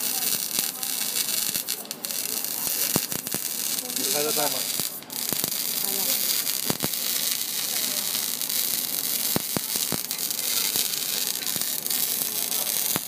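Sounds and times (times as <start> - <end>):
spatter pops: 0.0 - 13.0
welding arc hissing and crackling: 0.0 - 13.0.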